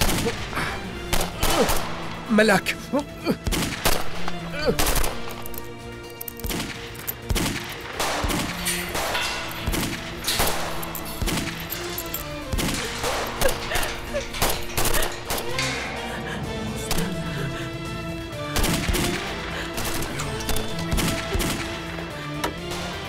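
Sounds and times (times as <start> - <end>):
gunshots and volleys: 0.0 - 2.3, 3.3 - 16.0, 16.8 - 23.0
dramatic music score: 0.0 - 23.0.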